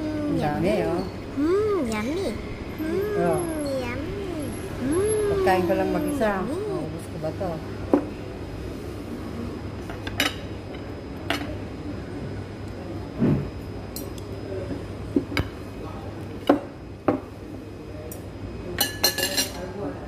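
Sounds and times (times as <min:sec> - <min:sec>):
low hum: 0:00.0 - 0:07.2
cutlery clinking on a plate: 0:18.8 - 0:19.6.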